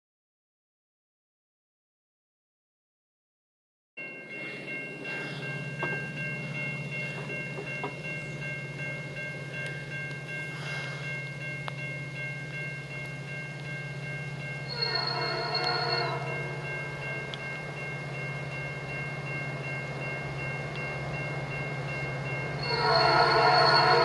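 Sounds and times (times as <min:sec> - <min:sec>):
distant train rumble: 0:04.0 - 0:24.0
train air horn chord: 0:14.7 - 0:16.6, 0:22.6 - 0:24.0.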